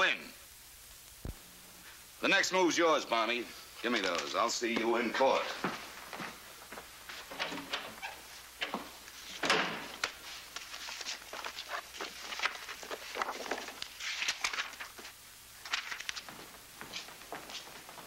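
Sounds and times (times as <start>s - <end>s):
footsteps: 3.8s - 14.1s, 16.1s - 18.0s
door closing: 7.3s - 10.0s.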